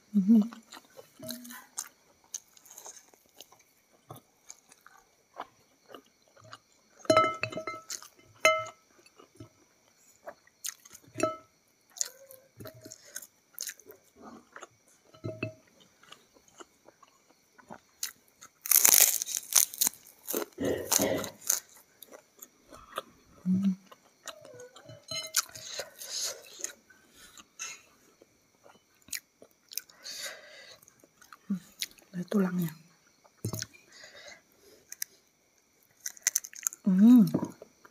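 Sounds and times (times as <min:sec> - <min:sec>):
person chewing: 0:00.5 - 0:32.0, 0:33.0 - 0:37.9
crunchy bite into fried food: 0:18.0 - 0:22.2, 0:36.0 - 0:37.6.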